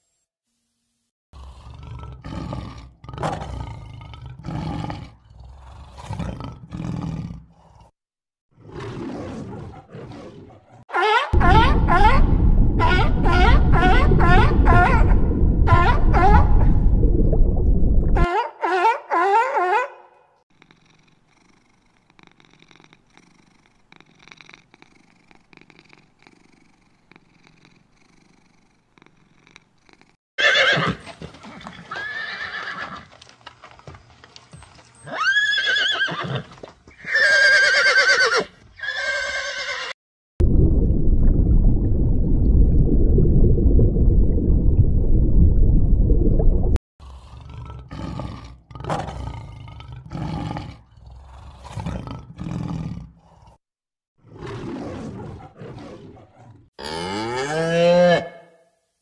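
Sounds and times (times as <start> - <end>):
loud low rumbling: 11.4 - 18.2, 40.4 - 46.8
kitten purring: 20.5 - 30.2
horse neighing: 30.4 - 33.1, 35.0 - 40.0.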